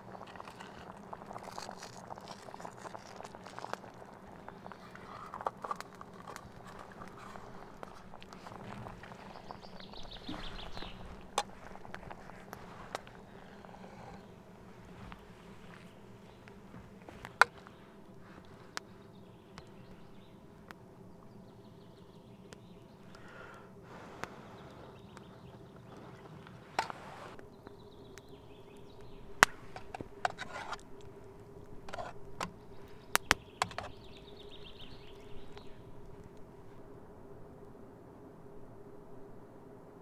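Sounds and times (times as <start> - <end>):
campfire crackling and popping: 0.0 - 21.3, 22.0 - 36.9
faint bird calls: 4.3 - 20.5, 21.2 - 30.8.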